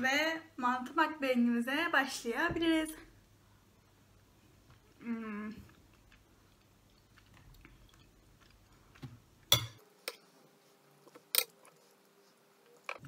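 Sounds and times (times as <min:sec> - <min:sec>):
chewing soft food: 0:04.6 - 0:09.5
person humming mmm: 0:05.0 - 0:05.8
metal spoon clinking: 0:09.5 - 0:10.2.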